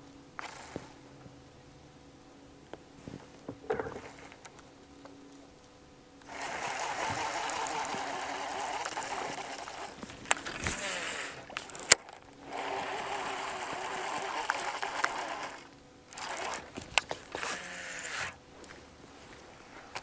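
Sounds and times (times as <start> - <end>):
fishing reel whirring: 0.4 - 1.0, 6.2 - 18.8
sharp clicks: 3.7 - 18.4.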